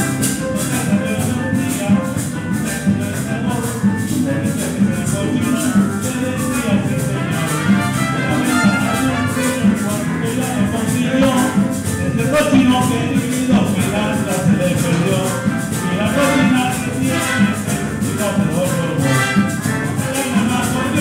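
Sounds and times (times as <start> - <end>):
live band playing: 0.0 - 21.0
high rattling strokes: 3.4 - 21.0.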